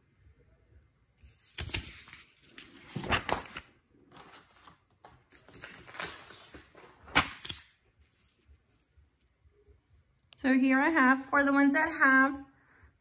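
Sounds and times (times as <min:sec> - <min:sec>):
paper rustling: 0:01.2 - 0:09.0.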